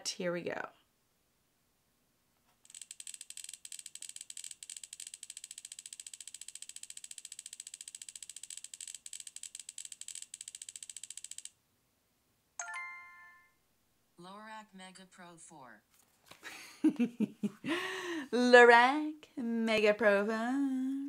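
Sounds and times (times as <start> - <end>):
rapid high ticks from speaker: 2.6 - 11.6.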